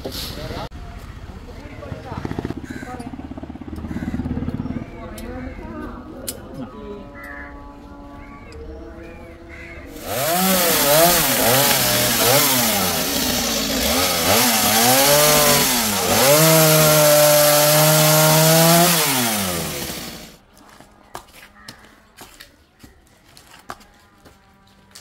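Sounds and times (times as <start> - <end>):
chainsaw cutting branches: 9.9 - 20.4.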